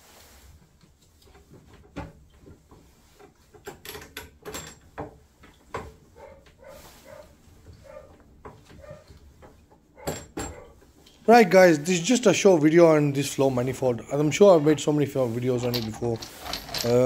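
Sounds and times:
small clicks and knocks of fittings: 0.8 - 6.6, 7.6 - 11.3.

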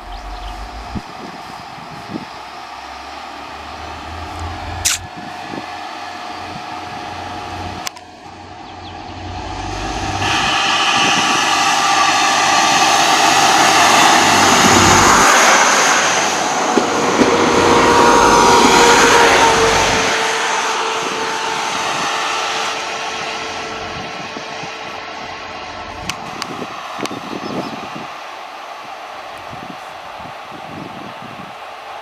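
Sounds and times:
train engine and running noise: 0.0 - 32.0
sharp click: 4.8 - 5.1.

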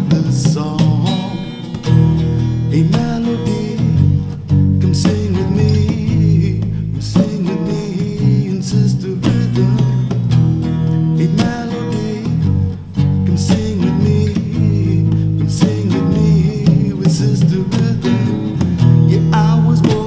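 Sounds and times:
plucked-string melody: 0.0 - 8.4
held bass notes: 0.0 - 20.0.

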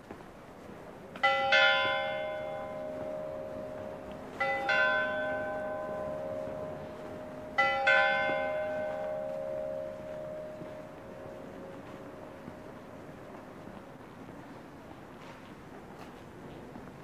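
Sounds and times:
church bells ringing: 1.2 - 13.4.

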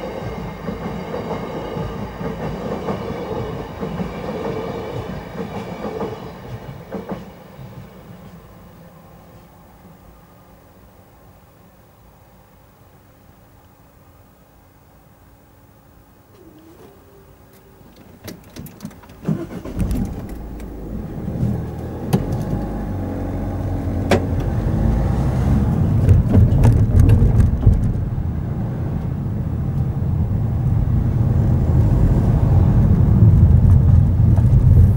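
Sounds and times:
car engine and tyre rumble: 17.9 - 34.9
knocks and bumps: 25.8 - 29.2.

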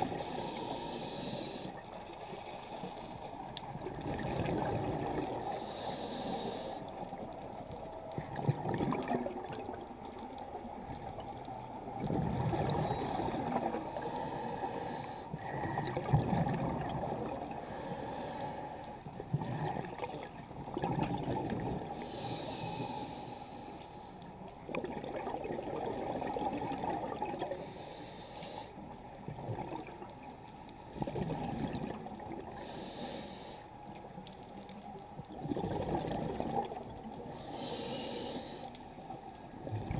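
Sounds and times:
bubbling bursts of exhaled air: 8.2 - 9.8, 12.0 - 13.8, 15.5 - 17.4, 31.0 - 32.4, 35.4 - 36.9.

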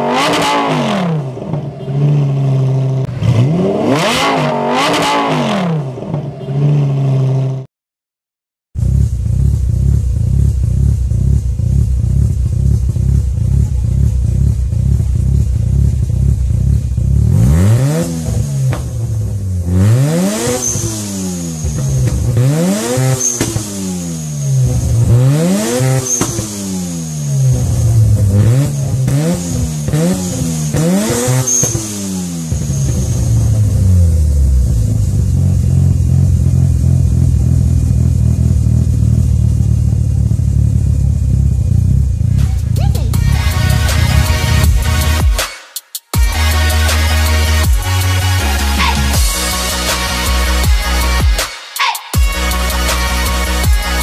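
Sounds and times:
rotary engine revving: 0.0 - 6.0, 8.8 - 39.3, 41.2 - 45.3
engine idling: 8.8 - 17.6, 32.5 - 45.4.

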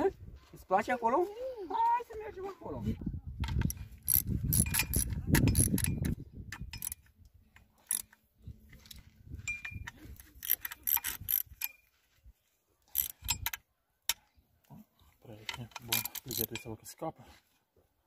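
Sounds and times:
ratchet wrench clicking: 3.4 - 7.1, 7.8 - 8.2, 9.6 - 11.8, 12.9 - 13.6, 15.8 - 16.6.

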